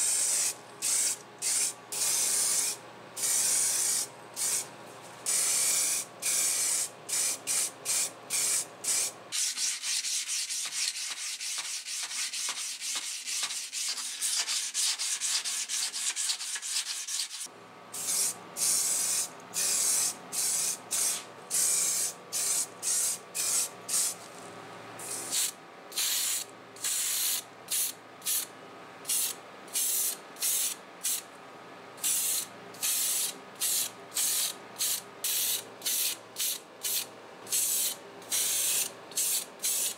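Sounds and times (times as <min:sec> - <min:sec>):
spray paint hissing: 0:00.0 - 0:04.7, 0:05.3 - 0:24.2, 0:25.0 - 0:28.5, 0:29.1 - 0:31.2, 0:32.0 - 0:39.9.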